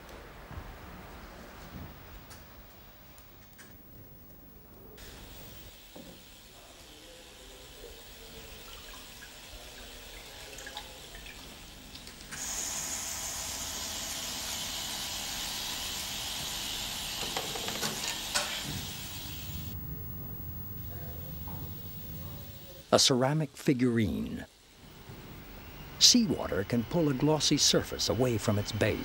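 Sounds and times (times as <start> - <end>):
faint steady hiss: 0.0 - 29.0
tap water running into sink: 7.9 - 19.2.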